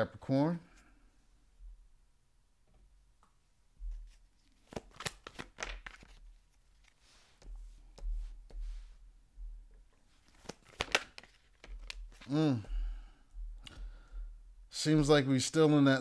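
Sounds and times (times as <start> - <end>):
cards being shuffled: 3.9 - 8.9, 10.1 - 12.4.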